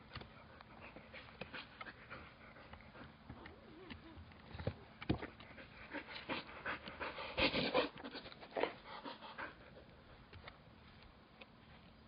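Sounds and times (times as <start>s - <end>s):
dog panting: 0.2s - 3.3s, 5.2s - 10.1s.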